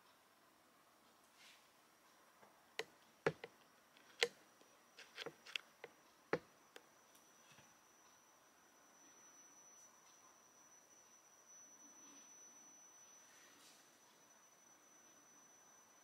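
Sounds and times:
sharp clicks and taps: 0:02.8 - 0:04.4
thin high whine: 0:06.4 - 0:16.0.

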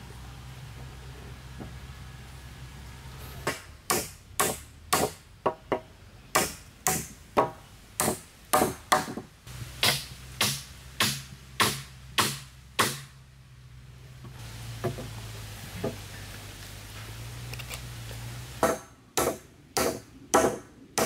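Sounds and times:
wood being chopped: 0:06.4 - 0:13.1, 0:18.6 - 0:21.0.

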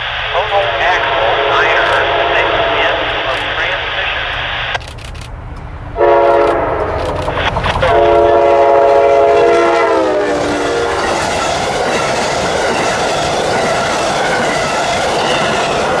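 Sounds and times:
train wheels on rails: 0:00.0 - 0:16.0
locomotive air horn: 0:00.3 - 0:04.3, 0:06.0 - 0:07.1, 0:07.8 - 0:11.6.

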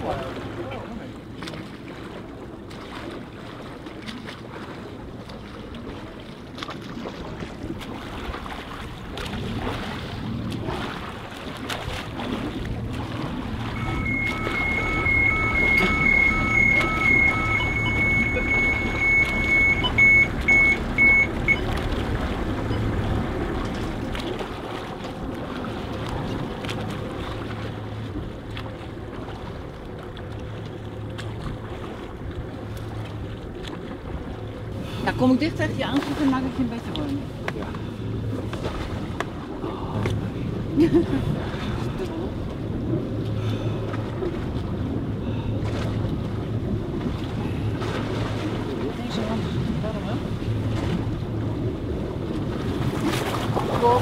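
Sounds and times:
boat engine running: 0:00.0 - 0:54.0
water noise: 0:00.0 - 0:54.0
wind: 0:00.0 - 0:54.0
lower pulsing beep: 0:13.7 - 0:21.8, 0:22.6 - 0:23.0
high electronic beep: 0:13.8 - 0:21.7.

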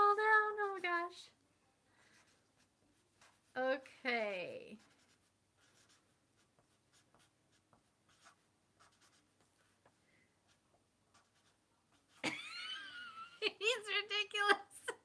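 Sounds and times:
handwriting scratching: 0:02.1 - 0:03.7, 0:04.3 - 0:12.3.

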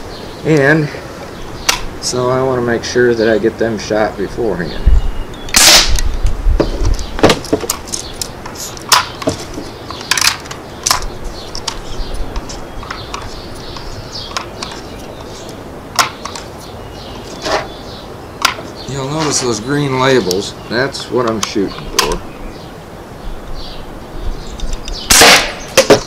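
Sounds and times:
wind rumble on microphone: 0:04.2 - 0:08.2, 0:21.9 - 0:25.1.

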